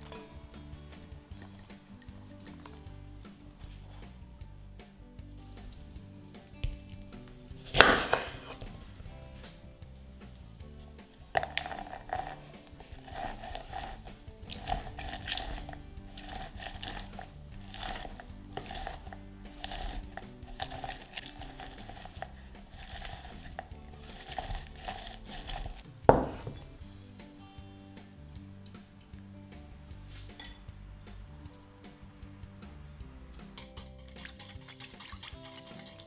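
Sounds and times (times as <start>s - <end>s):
lemon squeaking on citrus reamer: 11.4s - 25.8s.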